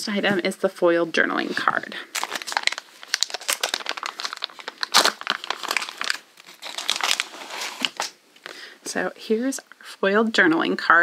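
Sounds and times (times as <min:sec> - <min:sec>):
packaging crinkling and rustling: 0:02.1 - 0:08.5.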